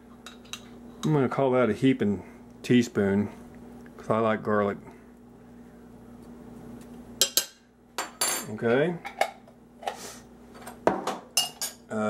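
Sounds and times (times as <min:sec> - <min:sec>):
metal spoon clinking on ceramic: 0:11.4 - 0:11.8.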